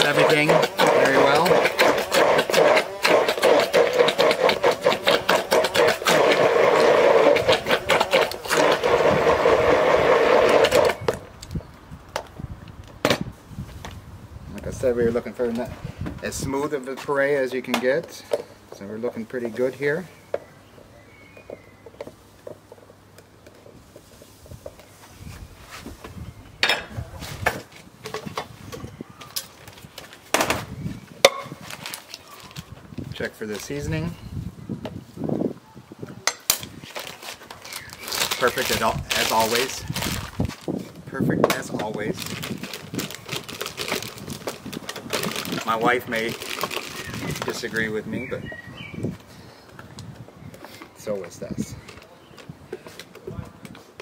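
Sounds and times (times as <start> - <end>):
immersion blender motor hum: 0.0 - 11.0.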